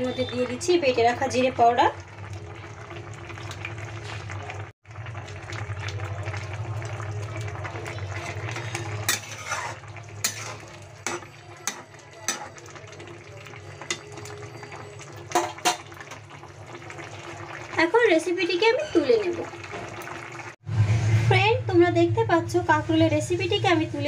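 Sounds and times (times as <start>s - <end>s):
curry simmering in a pan: 0.1s - 20.6s
metal spatula stirring: 8.2s - 12.6s.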